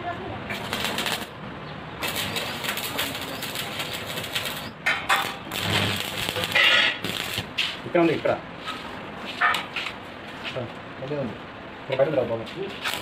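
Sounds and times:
welding arc crackling: 0:00.5 - 0:01.4, 0:02.0 - 0:07.9, 0:12.8 - 0:13.0.

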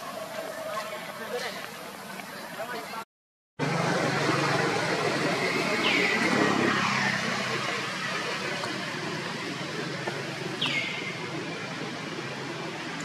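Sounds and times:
low engine hum: 0:03.6 - 0:13.0.

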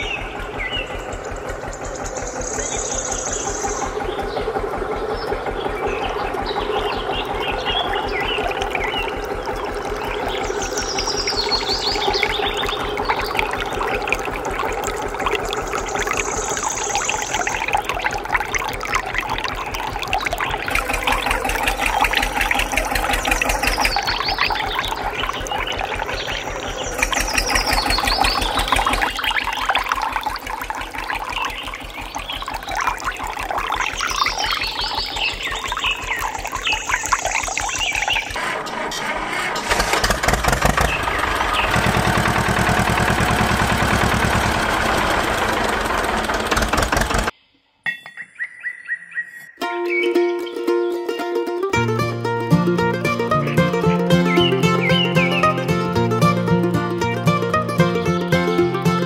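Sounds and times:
tractor engine running: 0:00.0 - 0:47.4, 0:51.8 - 0:59.0
background music: 0:49.6 - 0:59.0.

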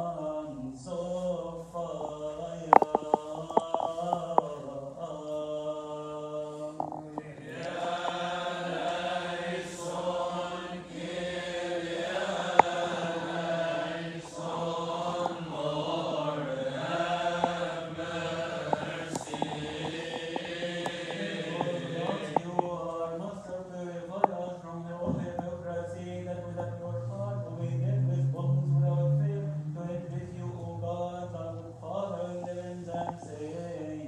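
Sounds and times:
voices chanting a hymn: 0:00.0 - 0:34.0
sharp clicks: 0:01.9 - 0:04.7, 0:12.1 - 0:13.2, 0:17.3 - 0:23.0.

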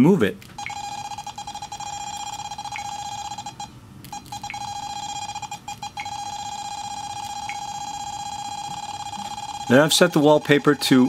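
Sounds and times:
high-pitched electronic alarm tone: 0:00.6 - 0:11.0.

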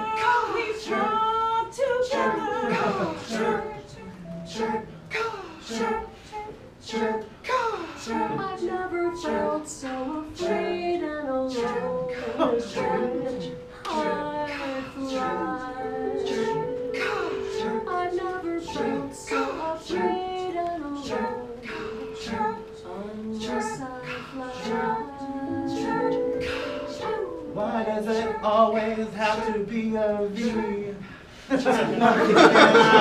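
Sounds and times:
voices singing a cappella: 0:00.0 - 0:33.0.

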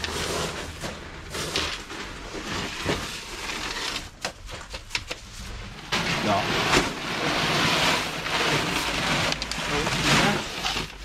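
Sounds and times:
gravel crunching and scraping: 0:05.4 - 0:11.0.

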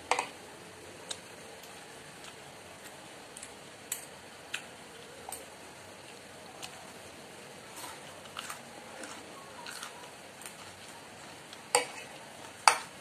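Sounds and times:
cutlery clicking on plate: 0:00.1 - 0:00.3, 0:12.6 - 0:12.9
person chewing food: 0:01.0 - 0:13.0.

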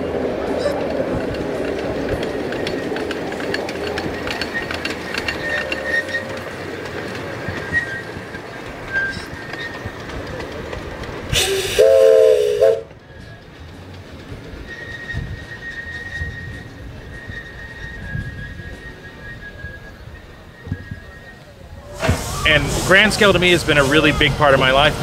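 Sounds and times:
train wheels clattering on rails: 0:00.0 - 0:21.1, 0:21.8 - 0:25.0
steam whistle blast: 0:11.3 - 0:12.9, 0:14.9 - 0:23.2.

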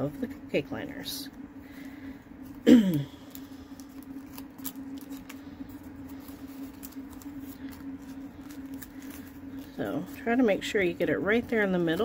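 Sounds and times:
steady low hum: 0:00.0 - 0:12.0
paper crinkling clicks: 0:03.2 - 0:10.3.

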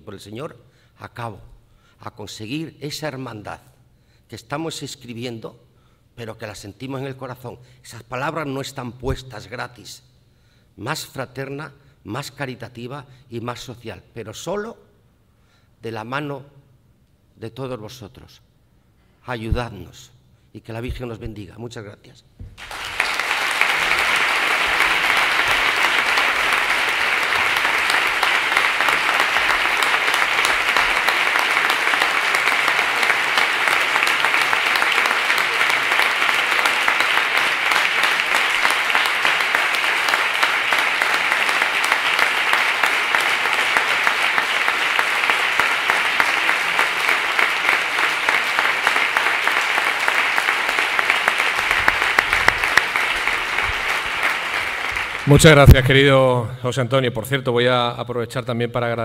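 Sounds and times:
audience applauding: 0:22.6 - 0:55.8.

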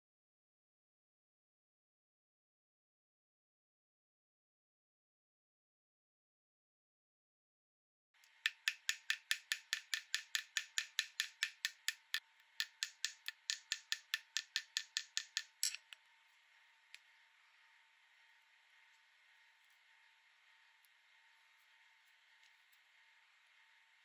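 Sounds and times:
hammer tapping on metal: 0:08.5 - 0:16.0.

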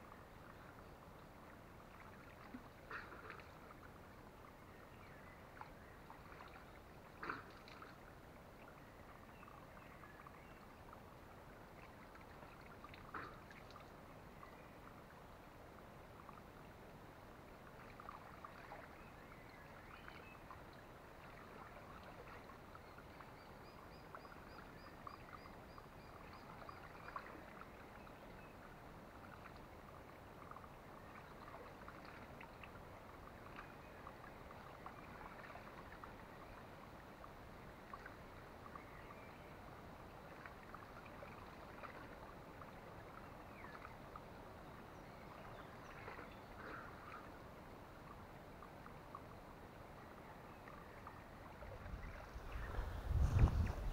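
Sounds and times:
soft steady water noise: 0:00.0 - 0:53.9
distant birdsong: 0:50.7 - 0:53.9.

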